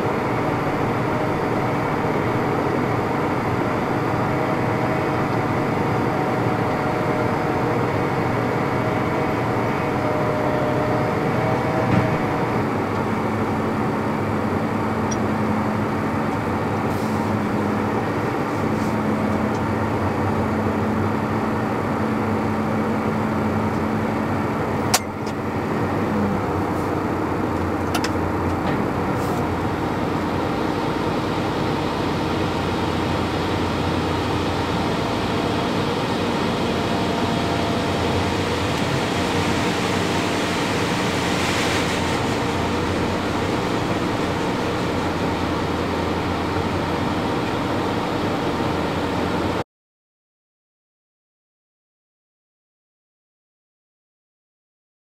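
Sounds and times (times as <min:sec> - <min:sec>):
tractor engine running: 0:00.0 - 0:49.6
hiss: 0:39.0 - 0:42.5.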